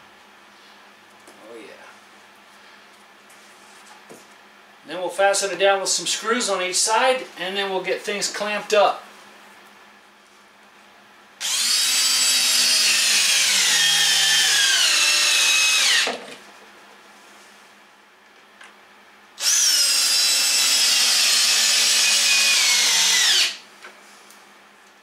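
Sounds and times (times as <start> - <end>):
power drill driving screws: 11.4 - 16.1, 19.4 - 23.6.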